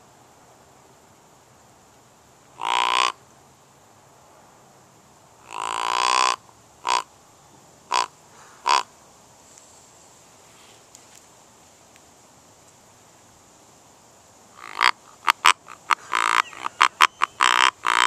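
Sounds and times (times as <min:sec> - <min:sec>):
deer grunt call: 0:02.6 - 0:03.2, 0:05.4 - 0:07.0, 0:14.6 - 0:18.0.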